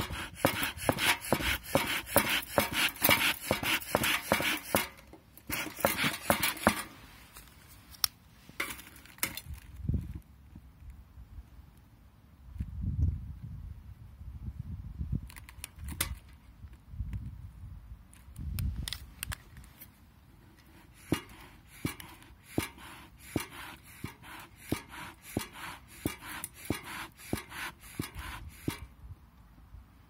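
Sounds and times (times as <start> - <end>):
bellows pumping puffs of air: 0.0 - 7.3, 20.6 - 29.0
clicks and knocks of packing fuel: 0.0 - 7.5, 20.6 - 28.9.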